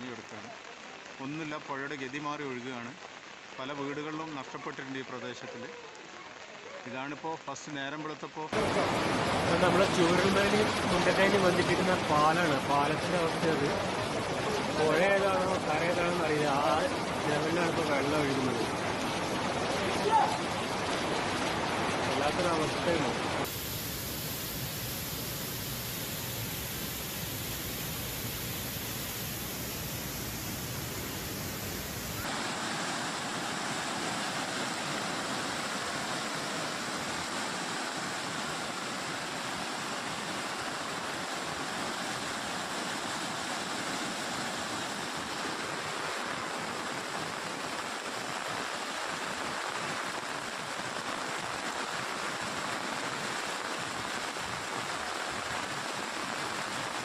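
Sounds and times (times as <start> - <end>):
floodwater rushing in a river: 8.5 - 57.0.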